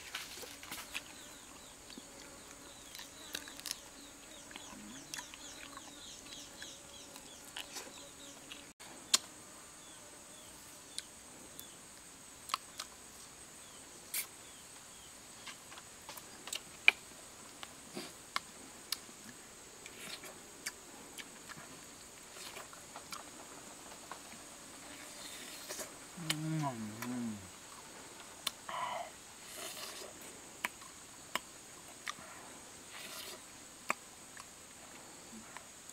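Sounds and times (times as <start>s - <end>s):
chewing: 19.9s - 23.3s.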